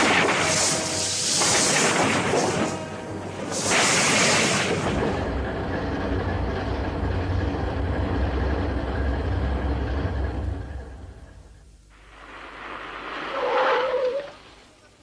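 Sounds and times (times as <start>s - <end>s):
loud rushing hissing burst: 0.0s - 5.2s, 12.0s - 13.5s
ferry engine rumbling: 0.0s - 15.0s.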